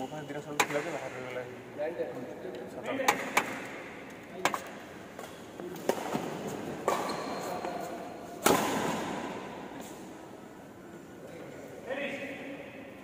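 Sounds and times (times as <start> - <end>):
rackets striking shuttlecock: 8.4 - 9.5.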